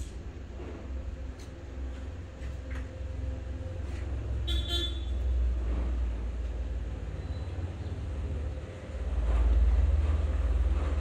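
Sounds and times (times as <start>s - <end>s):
short vehicle horn toot: 4.4s - 5.3s.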